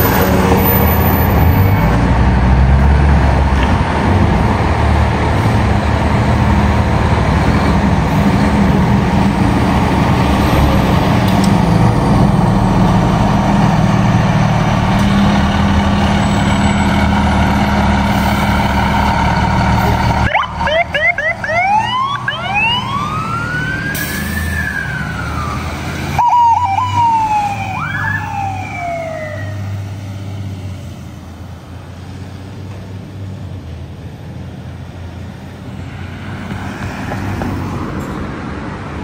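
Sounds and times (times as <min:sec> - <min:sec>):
fire truck sirens wailing: 0:00.0 - 0:30.4
truck engines rumbling: 0:00.0 - 0:39.0.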